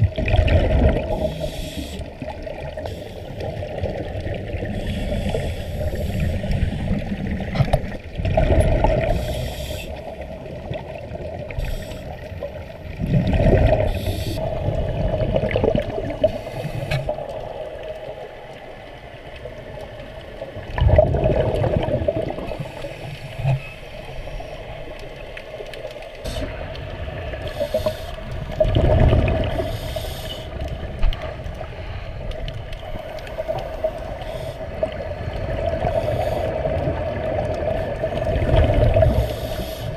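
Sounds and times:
diver's bubbles gurgling underwater: 0.0s - 23.6s, 24.4s - 39.9s.

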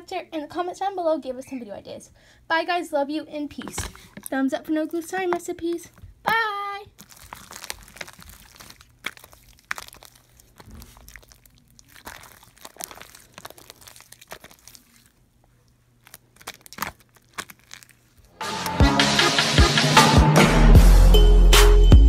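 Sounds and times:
slime squished by hand: 6.0s - 18.2s.

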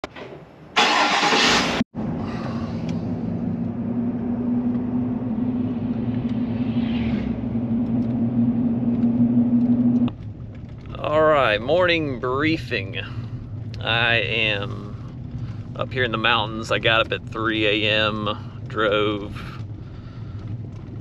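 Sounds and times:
car engine and road noise hum: 0.4s - 21.0s
loud rushing burst: 4.4s - 9.7s.

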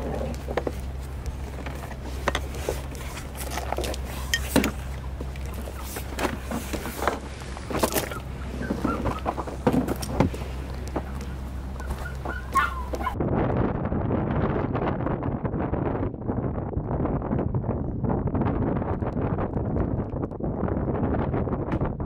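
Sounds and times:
steady low hum: 0.0s - 17.3s.

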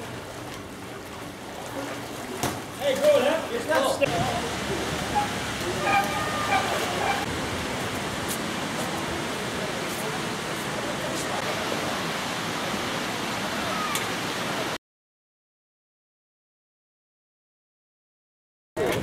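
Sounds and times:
rushing outdoor noise: 0.0s - 14.8s
faint voices: 1.6s - 7.3s, 8.4s - 14.8s.

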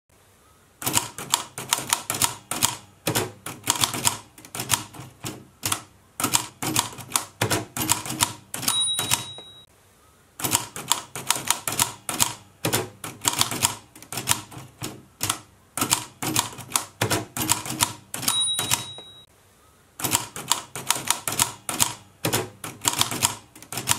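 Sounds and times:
typewriter keys clacking: 0.8s - 9.6s, 10.4s - 19.3s, 20.0s - 23.9s
typewriter bell ding: 8.6s - 9.7s, 18.2s - 19.3s.

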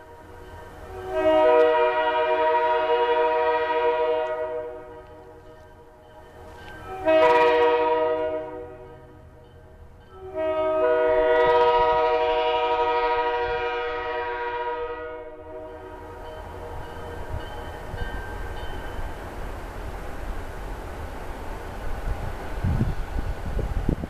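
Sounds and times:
low rumble of locomotives: 0.0s - 24.0s
locomotive air horn blasts: 0.9s - 5.2s, 6.9s - 9.1s, 10.1s - 16.0s.

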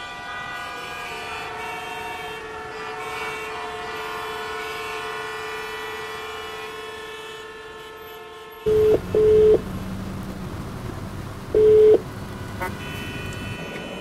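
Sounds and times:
telephone ringback beeps: 8.7s - 9.6s, 11.6s - 12.0s
steady held tone: 8.7s - 9.7s, 11.5s - 12.0s
low cabin noise: 8.7s - 14.0s.

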